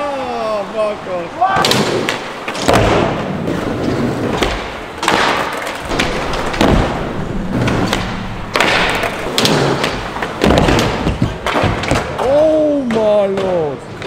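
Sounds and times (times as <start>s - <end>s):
skateboards rolling on ramps: 0.0s - 14.0s
skateboard landing thuds: 1.6s - 12.2s.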